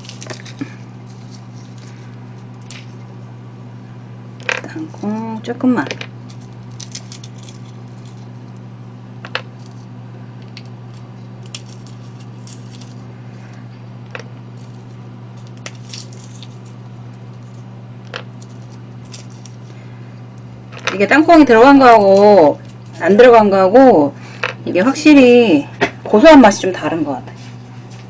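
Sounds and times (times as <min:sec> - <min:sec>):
peanut shells cracking: 0:00.0 - 0:03.1, 0:04.4 - 0:21.1
steady low hum: 0:00.0 - 0:28.0.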